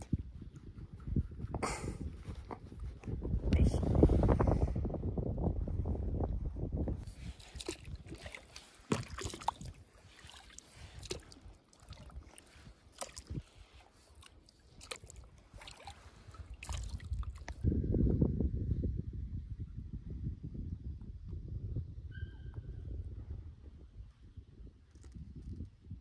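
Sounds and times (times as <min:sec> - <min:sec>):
water lapping against board: 0:07.0 - 0:17.6.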